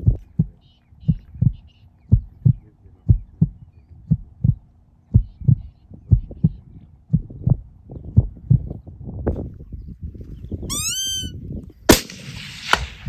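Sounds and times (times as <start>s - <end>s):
heartbeat thumps: 0.0s - 9.4s
rifle shot: 11.9s - 13.0s.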